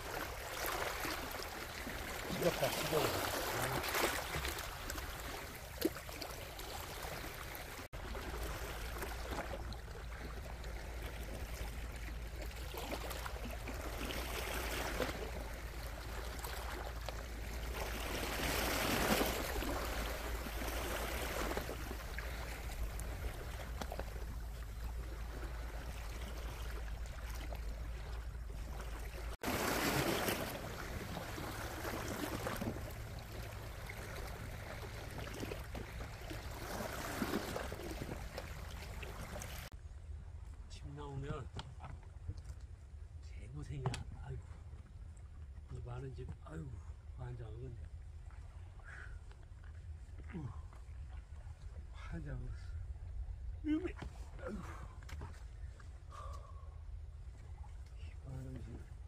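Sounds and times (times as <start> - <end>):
small waves lapping against rocks: 0.0 - 40.7.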